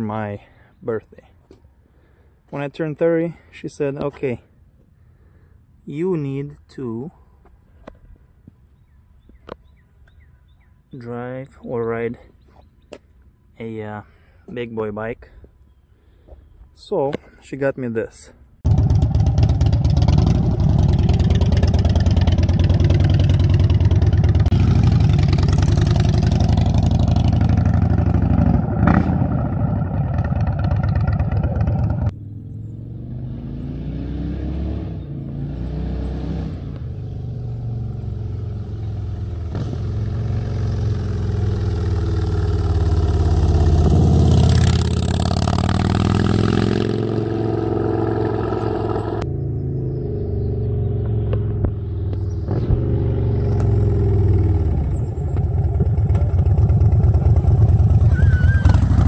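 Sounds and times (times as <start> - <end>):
motorcycle engine running: 18.7 - 32.6, 37.4 - 59.0.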